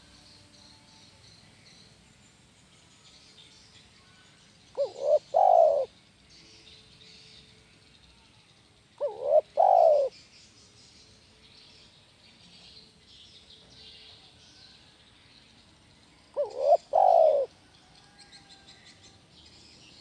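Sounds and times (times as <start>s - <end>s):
dove cooing: 4.8s - 5.9s, 9.0s - 10.2s, 16.4s - 17.6s.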